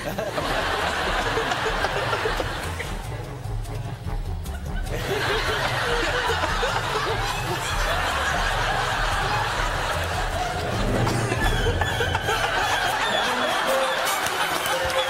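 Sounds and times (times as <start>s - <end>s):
studio audience laughing: 0.0s - 3.4s, 4.3s - 15.0s
background music: 0.0s - 15.0s.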